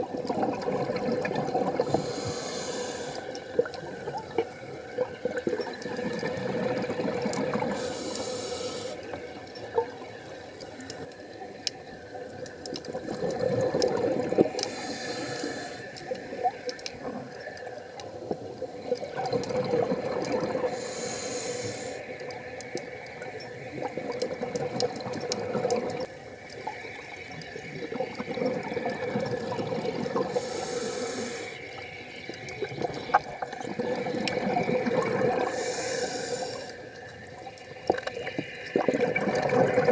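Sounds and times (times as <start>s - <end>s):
bubbling exhale underwater: 0.0s - 2.5s, 3.5s - 7.9s, 12.9s - 14.8s, 18.8s - 20.9s, 23.7s - 26.1s, 27.7s - 31.4s, 32.5s - 35.8s, 37.9s - 39.9s
regulator hissing on inhale: 1.8s - 4.6s, 7.6s - 9.2s, 14.4s - 18.9s, 20.6s - 24.0s, 30.1s - 32.5s, 35.3s - 37.4s.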